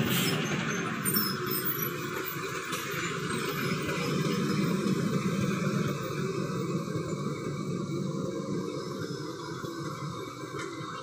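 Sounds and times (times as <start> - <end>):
tyre and traffic noise: 0.0 - 7.9
bus diesel engine under load: 0.0 - 11.0.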